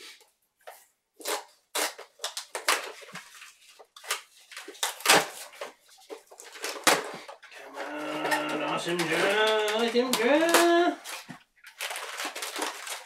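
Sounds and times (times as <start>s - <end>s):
packaging rustling: 0.8s - 13.0s
cardboard boxes being torn open: 4.0s - 5.8s, 6.4s - 13.0s.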